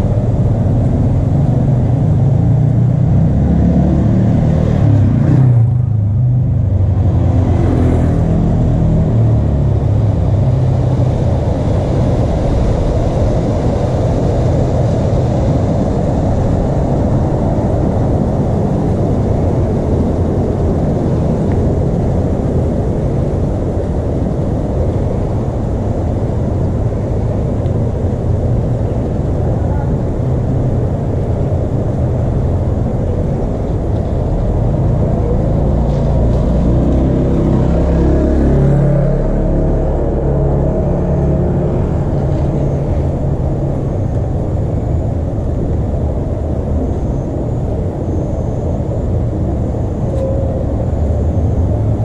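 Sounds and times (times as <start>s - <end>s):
steady low rumble: 0.0s - 52.0s.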